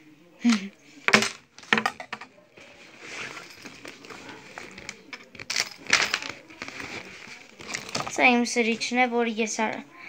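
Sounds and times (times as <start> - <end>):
small objects clinking: 1.1 - 2.3, 3.2 - 7.0
fabric bag rustling: 2.7 - 8.2.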